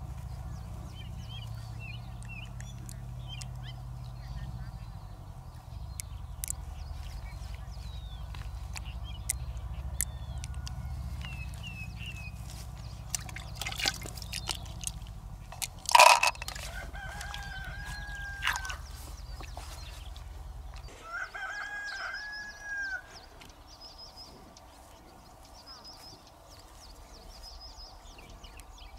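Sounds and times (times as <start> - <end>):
small birds chirping: 0.0 - 28.9
rooster crowing: 10.2 - 11.4, 16.6 - 19.2, 20.9 - 23.4.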